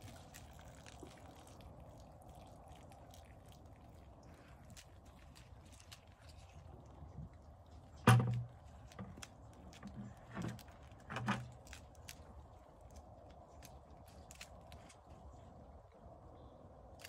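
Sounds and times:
goat knocking plastic bucket: 0:08.0 - 0:08.5.

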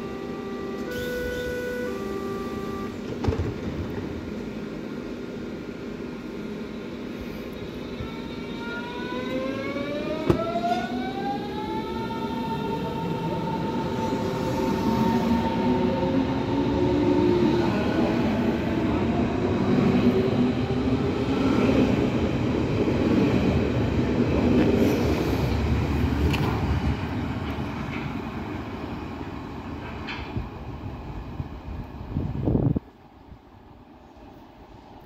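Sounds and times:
train doors knocking shut: 0:03.0 - 0:04.2, 0:10.2 - 0:10.8.

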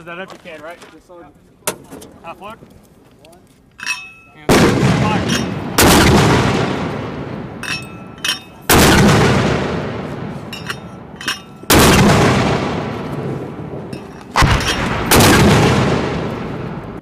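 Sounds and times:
mortar firing with rolling echo: 0:04.5 - 0:17.0.

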